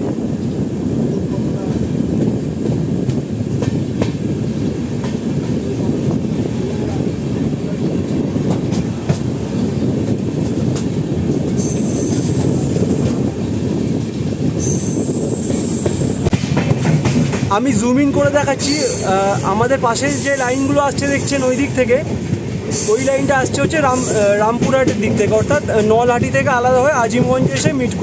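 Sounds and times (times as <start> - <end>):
train wheels rumbling on track: 0.0 - 28.0
high thin squeal: 11.5 - 13.1, 14.6 - 16.3, 18.6 - 21.8.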